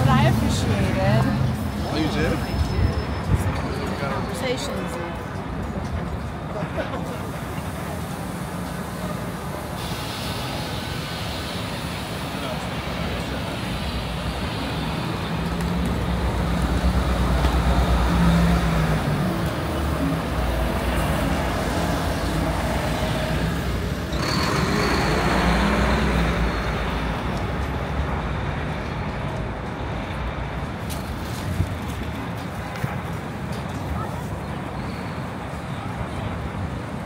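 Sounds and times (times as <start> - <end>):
city street traffic: 0.0 - 37.0
heavy vehicle engine running: 7.2 - 30.0
sudden hiss: 9.6 - 12.4.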